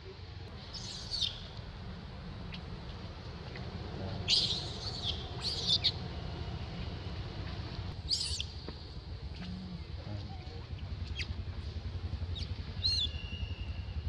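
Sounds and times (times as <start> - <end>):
baby monkey shrill cries: 4.3 - 5.9.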